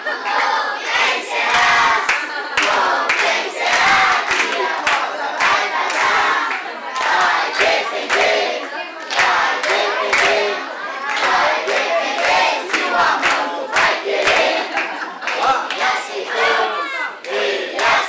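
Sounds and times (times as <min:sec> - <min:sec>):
group singing: 0:00.0 - 0:18.0
people clapping in time: 0:00.1 - 0:16.4, 0:17.2 - 0:18.0.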